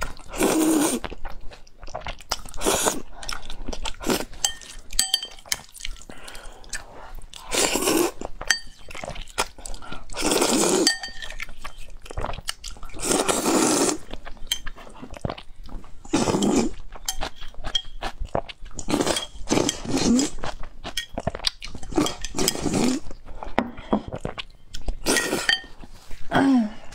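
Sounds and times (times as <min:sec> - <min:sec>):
chewing: 0:01.0 - 0:26.3
chopsticks clinking on bowl: 0:04.4 - 0:05.7, 0:08.5 - 0:09.2, 0:10.8 - 0:11.5, 0:17.1 - 0:18.0, 0:25.1 - 0:25.8
noodle slurping: 0:09.4 - 0:11.6, 0:12.8 - 0:14.2.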